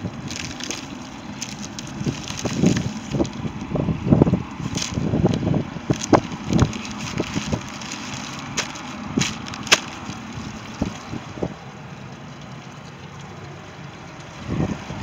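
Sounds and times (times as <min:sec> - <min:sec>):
handling clicks and knocks: 0:00.0 - 0:03.7, 0:04.5 - 0:11.3
outboard motor running: 0:00.0 - 0:15.0.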